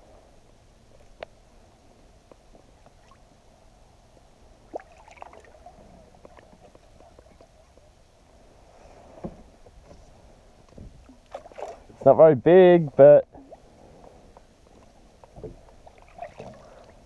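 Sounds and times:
fish splashing in water: 4.7 - 6.4, 15.8 - 17.0.

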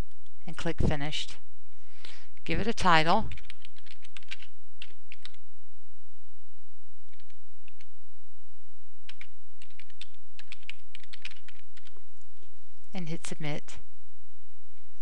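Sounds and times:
low hum: 0.0 - 15.0
keyboard typing: 3.3 - 5.4, 7.1 - 7.9, 9.1 - 12.0.

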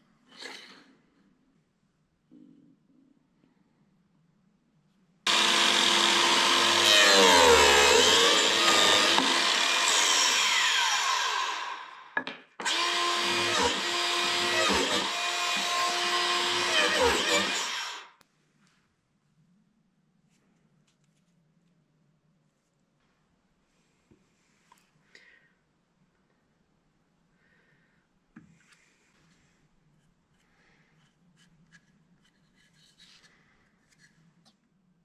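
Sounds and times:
biscuit joiner cutting wood: 5.3 - 18.2.

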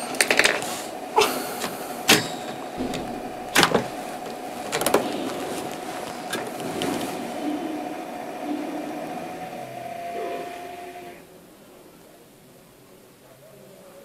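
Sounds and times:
computer fan humming: 0.0 - 12.0
handling clicks and knocks: 2.1 - 5.1.

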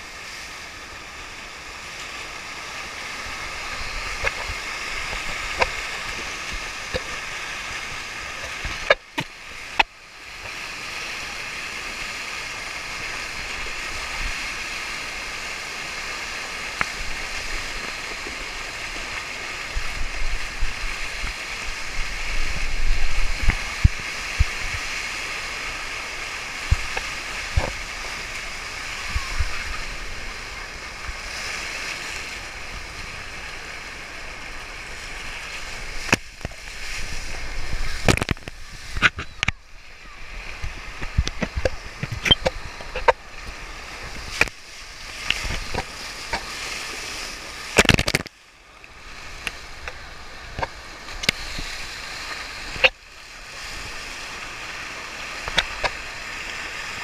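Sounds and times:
water rushing over surface: 0.0 - 57.0
low thumps and splashes: 19.7 - 24.9, 34.9 - 46.5.

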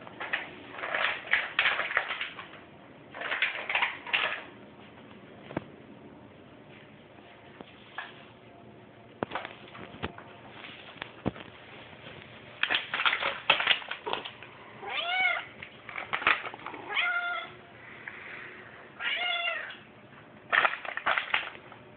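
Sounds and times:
cat meowing: 14.8 - 15.5, 16.8 - 17.6, 19.0 - 19.8.

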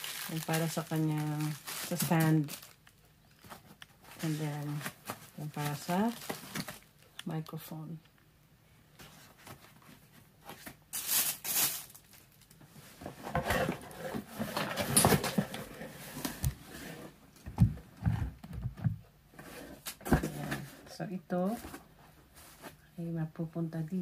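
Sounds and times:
plastic wrapping rustling: 0.0 - 7.6, 9.0 - 16.5
parts clattering in cardboard box: 13.1 - 15.8.

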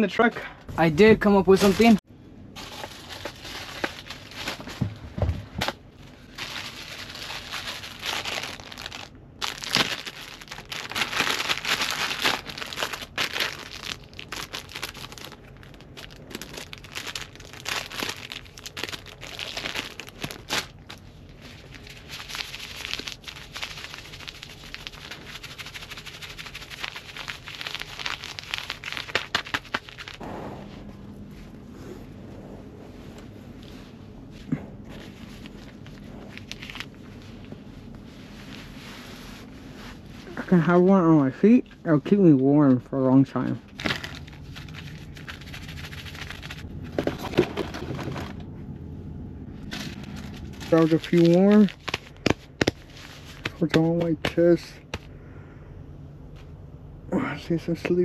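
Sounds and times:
plastic wrappers tearing and crinkling: 1.5 - 2.0, 2.6 - 4.8, 5.6 - 30.2, 34.9 - 37.0, 43.7 - 48.4, 49.6 - 55.1.

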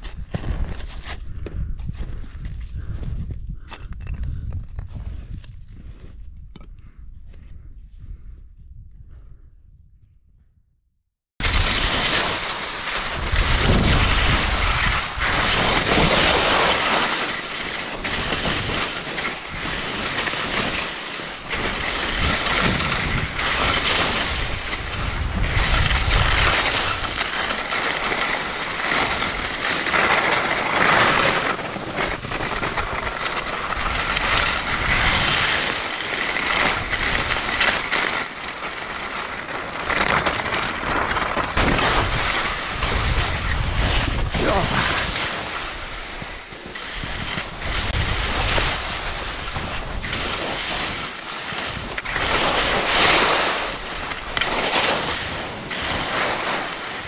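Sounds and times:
wind buffeting microphone: 0.0 - 10.6, 13.0 - 16.7, 21.4 - 27.6, 41.5 - 56.2
skis scraping over snow: 11.4 - 57.0.

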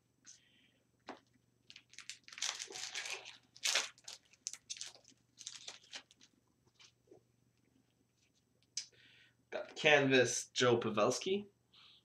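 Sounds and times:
wrapper tearing and crinkling: 1.7 - 6.3.

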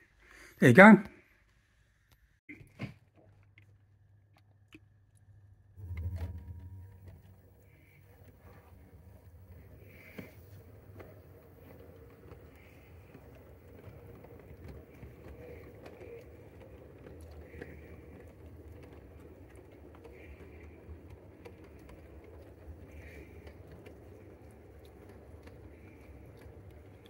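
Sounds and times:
clicks over rail joints: 5.8 - 27.0
model train rumbling: 5.8 - 27.0.

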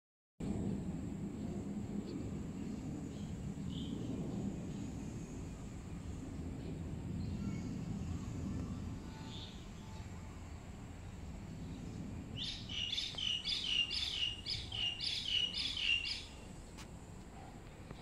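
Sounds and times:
low rumble: 0.4 - 14.7.

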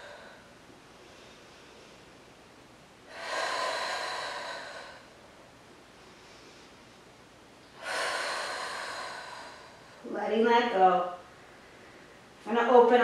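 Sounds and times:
woman breathing deeply: 0.0 - 2.3, 3.0 - 7.0, 7.7 - 10.1.

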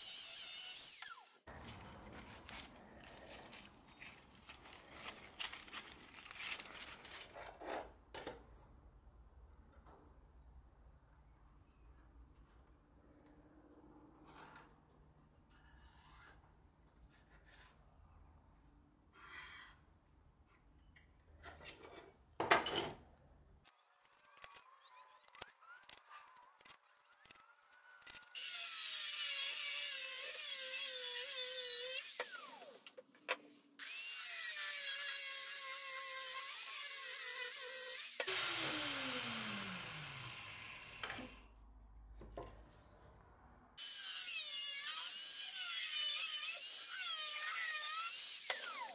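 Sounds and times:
angle grinder cutting steel: 0.0 - 1.5, 28.0 - 32.9, 33.8 - 41.4, 43.8 - 48.9
marker scratching on steel: 17.1 - 17.8, 19.1 - 19.8.

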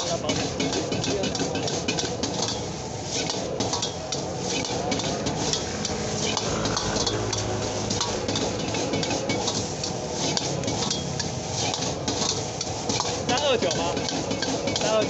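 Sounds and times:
rice sizzling: 0.0 - 15.0
metal ladle scraping a wok: 0.1 - 14.9.

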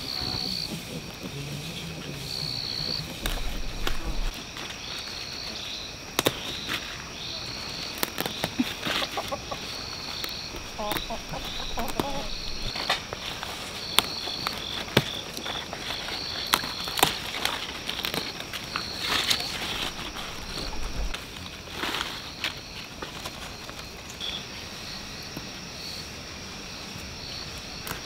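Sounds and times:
chickens clucking: 0.0 - 4.3, 8.2 - 13.2, 19.4 - 21.2
steady high chirping: 9.5 - 12.8.

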